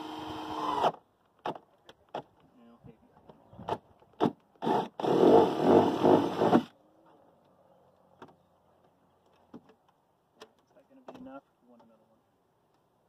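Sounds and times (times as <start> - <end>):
cordless drill boring through plastic: 0.0 - 1.0, 4.6 - 6.7.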